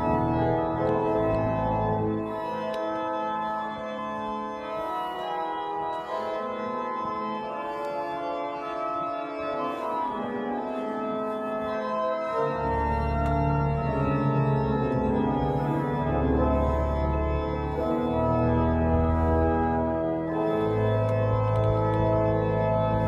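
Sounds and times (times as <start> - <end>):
organ sustained chords: 0.0 - 23.0
deep organ bass: 12.4 - 23.0.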